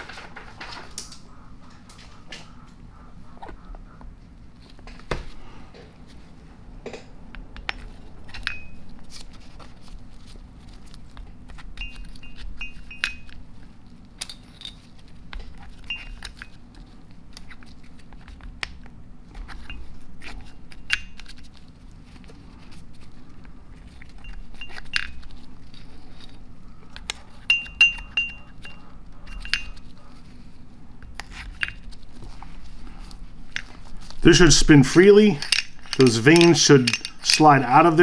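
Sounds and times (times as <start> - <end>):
light metal clicks and clinks: 35.4 - 37.6.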